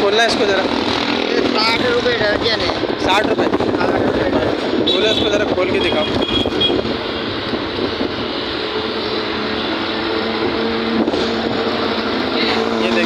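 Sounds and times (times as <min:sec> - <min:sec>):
road traffic noise: 0:00.0 - 0:13.0
passing vehicle engine hum: 0:06.4 - 0:13.0.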